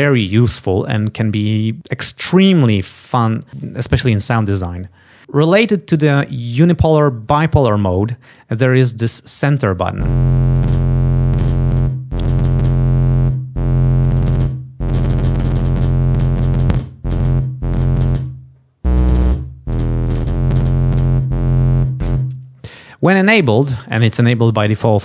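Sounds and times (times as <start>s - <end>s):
buzzy distorted test tone: 9.8s - 22.6s
clicks: 10.5s - 12.9s, 14.0s - 21.3s.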